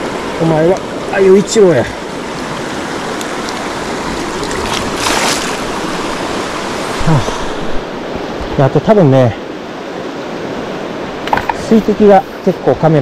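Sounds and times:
heavy rain: 0:00.0 - 0:07.9
river water rushing: 0:00.0 - 0:13.0.

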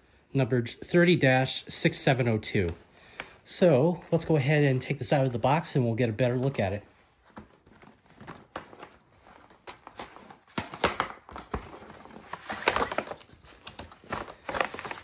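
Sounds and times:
plastic packaging crinkling: 0:02.5 - 0:15.0
cardboard box rustling: 0:06.3 - 0:10.6, 0:11.4 - 0:15.0.

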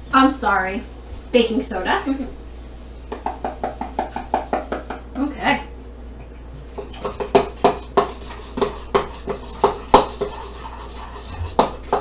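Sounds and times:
spoon scraping metal bowl: 0:06.8 - 0:12.0.

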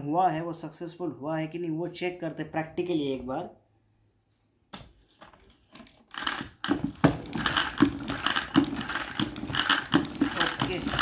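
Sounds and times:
spin mop mechanism clattering: 0:05.7 - 0:11.0.

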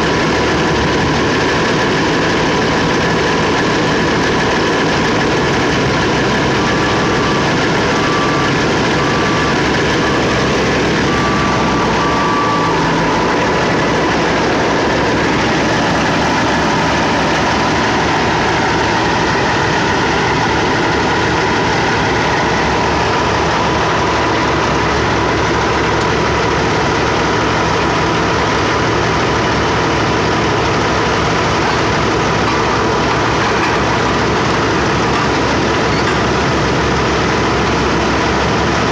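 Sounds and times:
reversing alarm beeping: 0:00.0 - 0:29.6, 0:30.3 - 0:38.8
heavy machinery engines running: 0:00.0 - 0:38.9.

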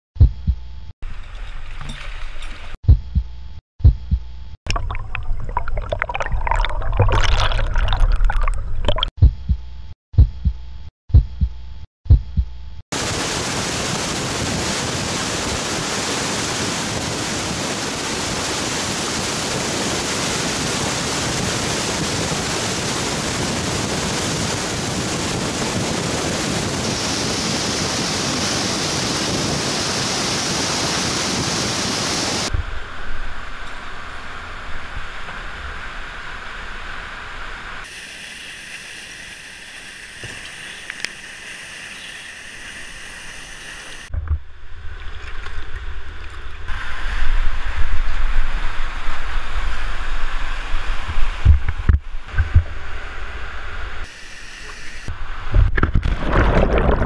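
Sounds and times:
waterfall roaring: 0:13.0 - 0:37.8.

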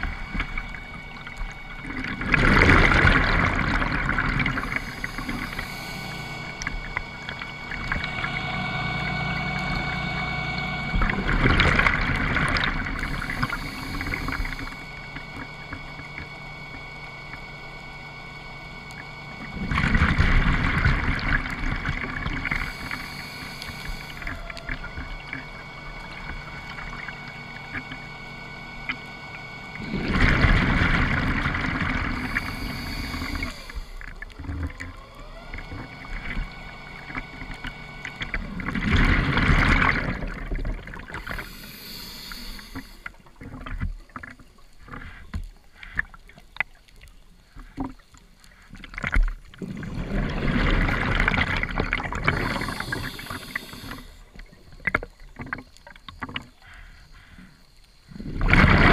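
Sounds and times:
exhaled bubbles underwater: 0:00.0 - 0:57.3, 0:58.1 - 0:58.9
breathing through regulator: 0:02.5 - 0:15.2, 0:22.4 - 0:25.0, 0:29.8 - 0:35.4, 0:38.0 - 0:43.2, 0:49.8 - 0:54.5, 0:56.6 - 0:58.9.

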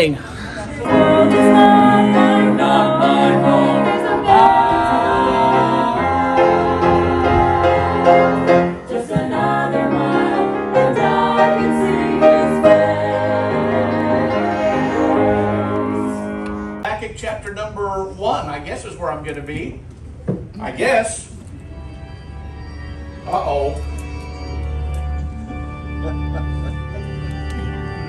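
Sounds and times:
choir singing gospel music: 0:00.8 - 0:16.8.

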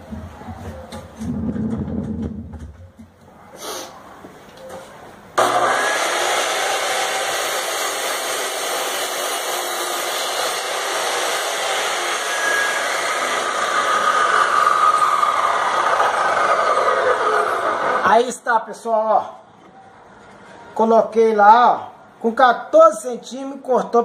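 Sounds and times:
cut-off saw cutting wood: 0:05.4 - 0:18.1.

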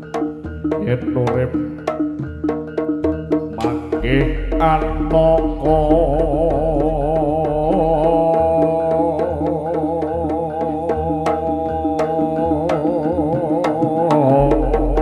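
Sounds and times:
drum and percussion strokes: 0:00.0 - 0:15.0
gamelan instrument tones: 0:00.0 - 0:15.0
person singing wavering line: 0:03.5 - 0:15.0.

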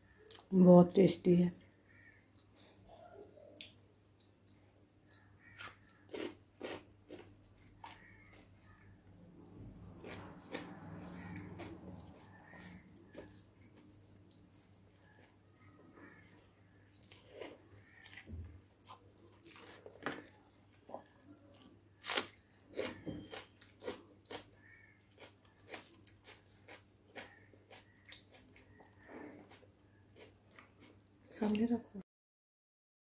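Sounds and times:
chewing and biting food: 0:05.1 - 0:31.2.

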